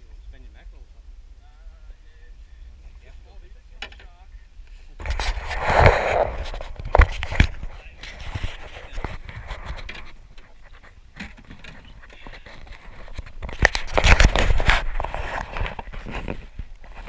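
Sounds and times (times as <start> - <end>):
low wind rumble on microphone: 4.4 - 17.0.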